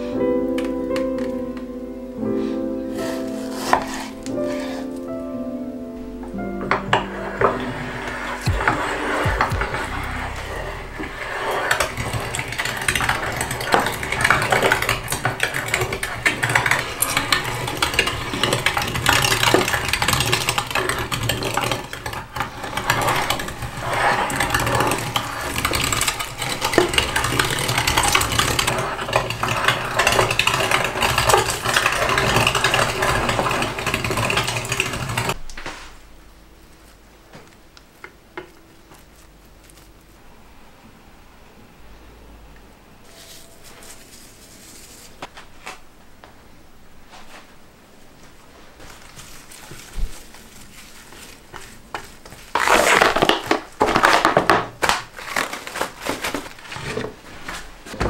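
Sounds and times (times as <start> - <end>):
hand-cranked meat grinder grinding: 6.7 - 35.4, 48.9 - 57.2.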